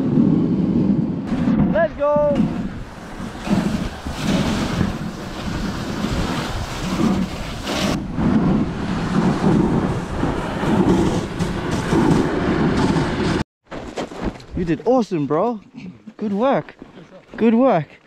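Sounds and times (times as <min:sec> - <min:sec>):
wind buffeting microphone: 0:00.0 - 0:13.4
dog sled running on snow: 0:01.7 - 0:14.0.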